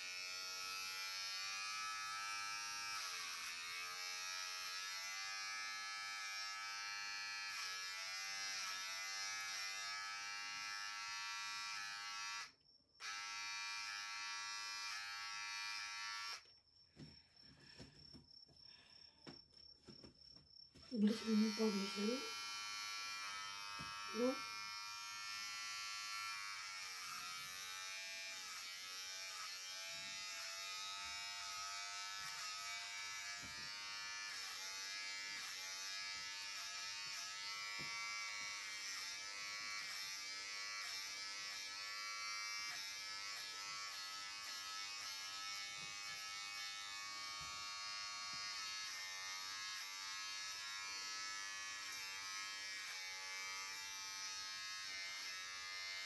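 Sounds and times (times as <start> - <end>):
electric hair clipper buzzing: 0.0 - 16.5, 20.9 - 56.0.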